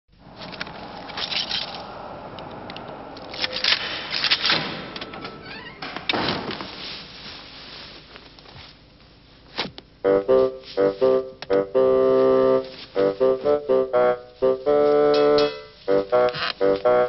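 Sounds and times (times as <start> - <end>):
door unlocking and closing: 3.3 - 6.5
jacket rustling: 6.4 - 17.0
piano notes: 10.0 - 17.0.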